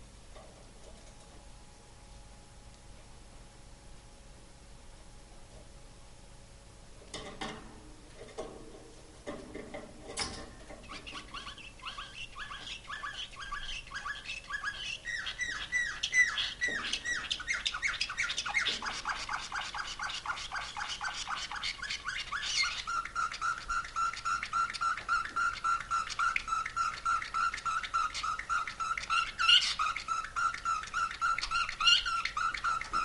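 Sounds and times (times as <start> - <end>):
canary singing: 10.7 - 33.0.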